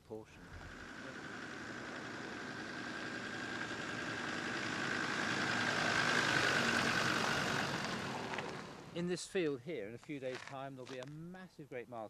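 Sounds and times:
steady high whine: 0.4s - 9.0s
vehicle driving past: 0.4s - 9.0s.

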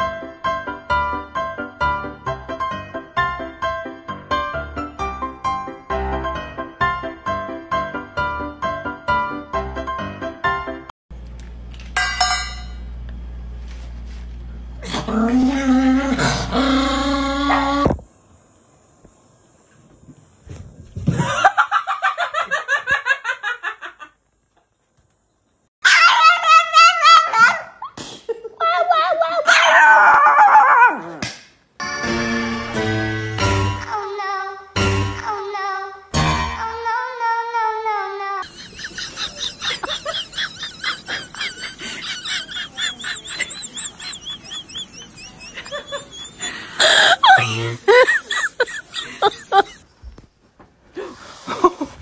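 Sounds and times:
person laughing rapidly: 38.4s - 49.8s.

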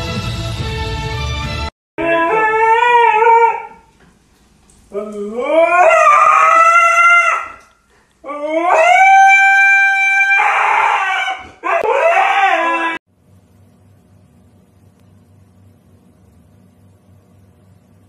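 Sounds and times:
husky howling: 2.0s - 3.9s, 4.9s - 13.0s.

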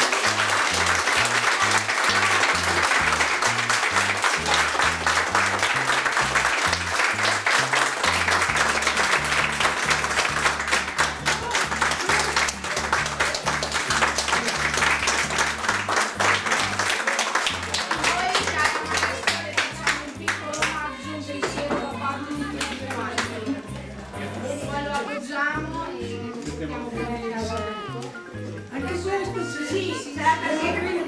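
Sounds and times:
crowd applauding: 0.0s - 23.5s
background music with bass line: 0.0s - 31.0s.

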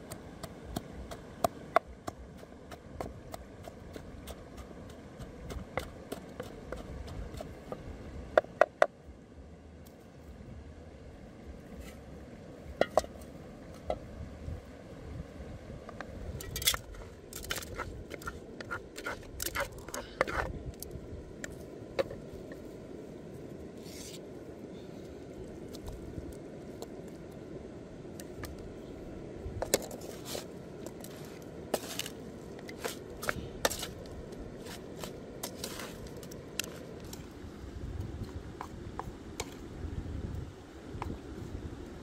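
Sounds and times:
low background hiss: 0.0s - 42.0s
spoon scraping a pan and mortar: 16.4s - 20.5s.

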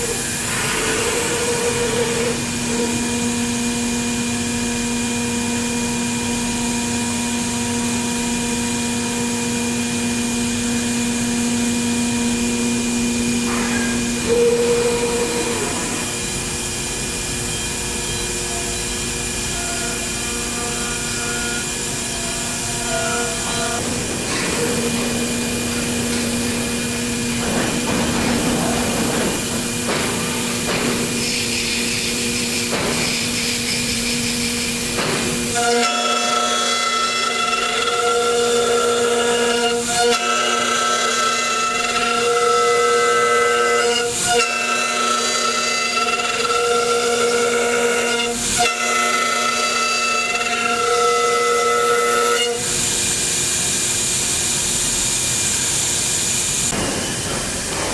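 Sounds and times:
router spindle whining: 10.2s - 52.6s.

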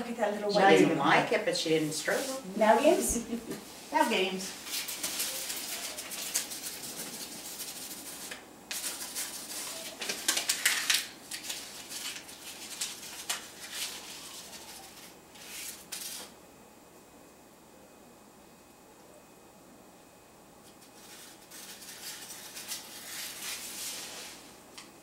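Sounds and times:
paper crumpling: 4.6s - 16.3s, 20.9s - 24.1s.

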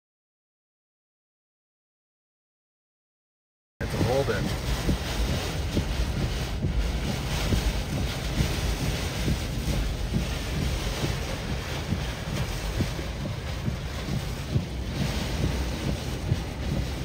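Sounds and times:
wind and driving rain: 3.8s - 17.0s
wind buffeting microphone: 3.8s - 17.0s.

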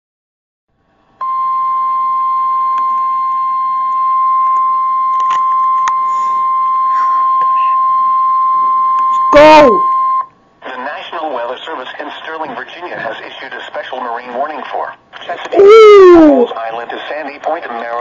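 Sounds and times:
steady high alarm tone: 1.2s - 10.2s.

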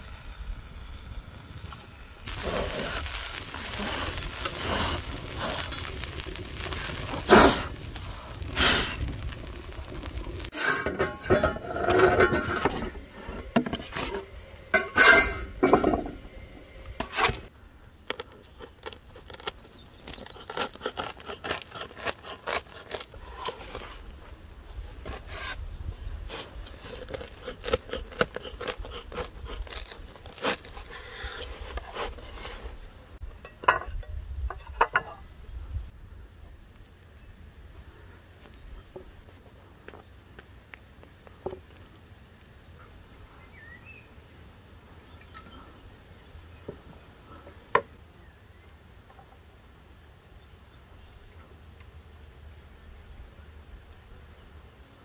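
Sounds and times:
metal spatula scraping griddle: 10.4s - 16.2s, 17.0s - 17.5s
knife sawing through crust: 20.3s - 23.9s, 26.8s - 32.6s.

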